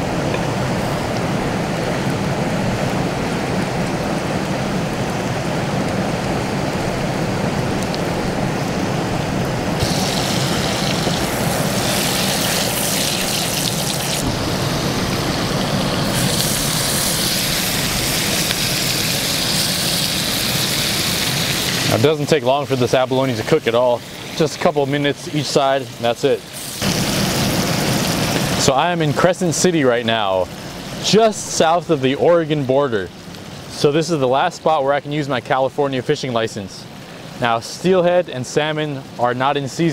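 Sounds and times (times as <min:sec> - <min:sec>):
river water rushing: 0:00.0 - 0:32.2
food sizzling in a pan: 0:09.8 - 0:28.8.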